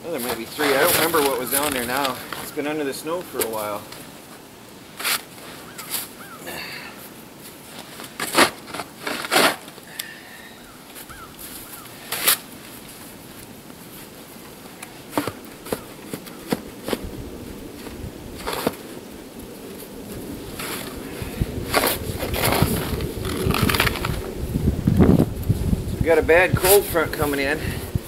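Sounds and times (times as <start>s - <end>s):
snow shovel crunching and scraping: 0.1s - 2.6s, 5.0s - 6.2s, 7.4s - 9.9s, 11.0s - 13.3s, 21.6s - 24.2s.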